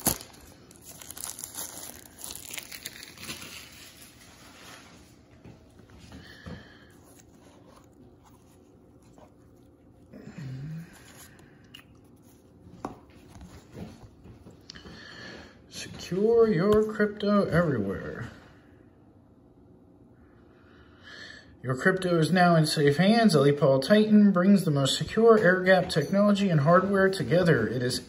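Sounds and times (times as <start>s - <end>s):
shrink-wrap crinkling and tearing: 0.0s - 5.0s.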